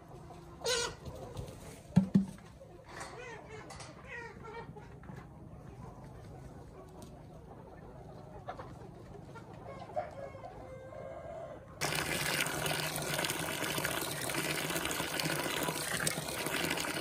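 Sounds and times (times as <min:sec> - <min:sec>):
chickens clucking: 0:00.0 - 0:11.8
water splashing into plastic basin: 0:11.8 - 0:17.0.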